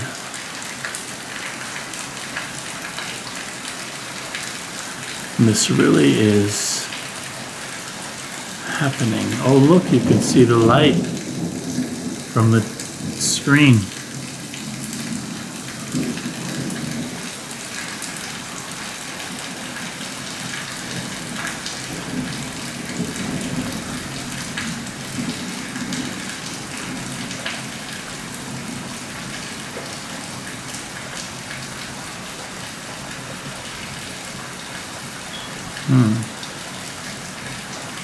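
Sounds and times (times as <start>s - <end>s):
raindrops ticking: 0.0s - 38.0s
steady rain: 0.0s - 38.0s
thunder rumbling: 8.9s - 15.2s.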